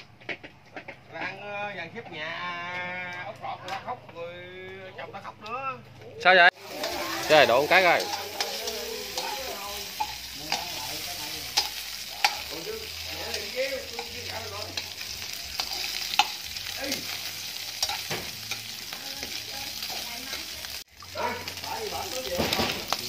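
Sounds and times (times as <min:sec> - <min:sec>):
food sizzling in oil: 0:06.5 - 0:23.0
metal spatula scraping pan: 0:06.6 - 0:20.7.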